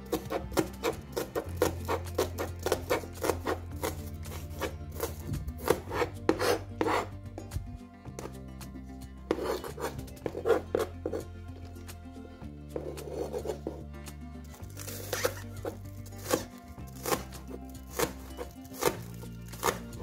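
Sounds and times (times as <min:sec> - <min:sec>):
knife chopping on cutting board: 0:00.1 - 0:07.1, 0:15.2 - 0:20.0.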